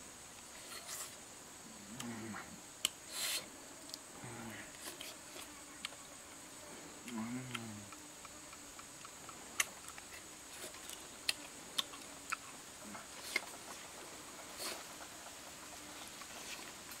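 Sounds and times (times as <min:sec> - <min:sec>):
mouth clicks and smacks chewing: 0:07.1 - 0:12.6, 0:13.2 - 0:13.8.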